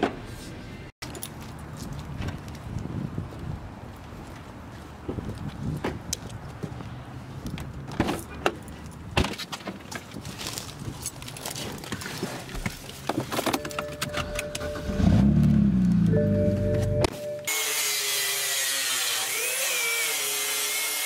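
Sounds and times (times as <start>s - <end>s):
two-tone chime: 13.6s - 15.2s, 16.1s - 17.5s
car engine starting: 13.7s - 17.1s.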